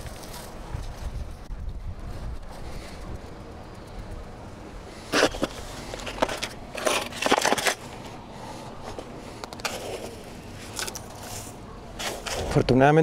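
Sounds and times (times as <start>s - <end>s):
hands scraping gritty soil: 5.0s - 13.0s.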